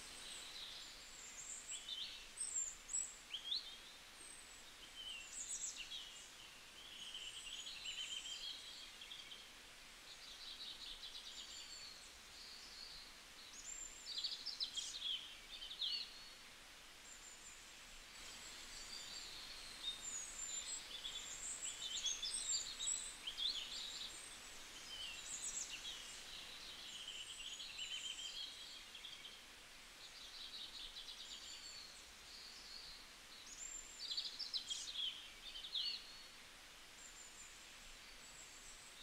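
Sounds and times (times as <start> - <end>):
steady background hiss: 0.0 - 39.0
small birds chirping and trilling: 18.2 - 36.4.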